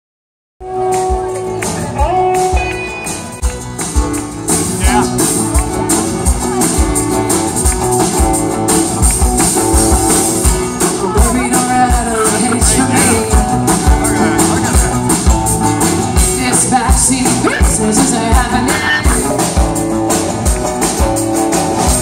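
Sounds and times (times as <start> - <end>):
bass guitar: 0.6 - 22.0
drum kit beat: 0.6 - 22.0
electric and acoustic guitars: 0.6 - 22.0
woman singing: 11.0 - 13.5, 16.2 - 19.3.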